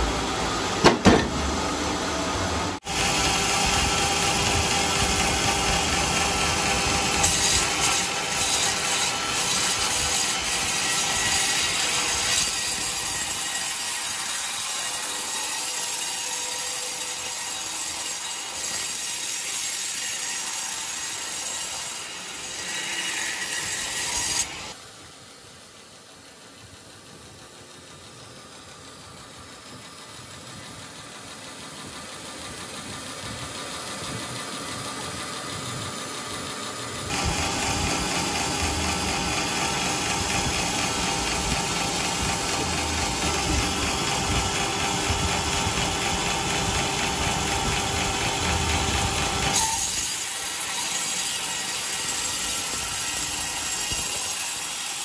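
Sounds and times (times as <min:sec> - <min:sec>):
mill noise: 0:00.0 - 0:08.4, 0:24.4 - 0:49.6
band saw cutting wood: 0:00.0 - 0:24.8, 0:29.8 - 0:55.0.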